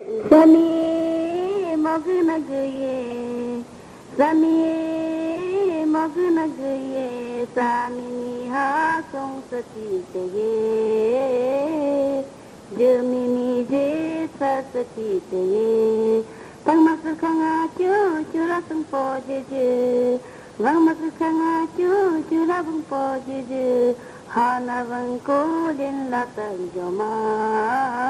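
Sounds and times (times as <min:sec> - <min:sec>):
solo voice singing slow melody: 0:00.0 - 0:28.0
singer breathing: 0:03.7 - 0:04.2, 0:16.3 - 0:16.6, 0:20.2 - 0:20.6, 0:24.0 - 0:24.3.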